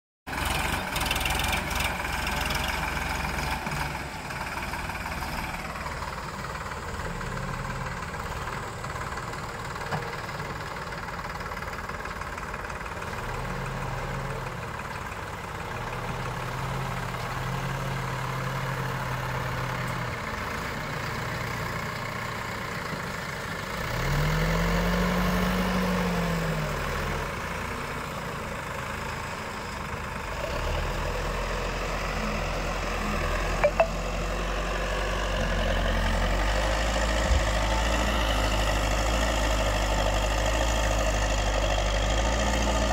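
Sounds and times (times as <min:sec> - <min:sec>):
diesel engines running: 0:00.3 - 0:42.9
engine revving: 0:23.7 - 0:27.7.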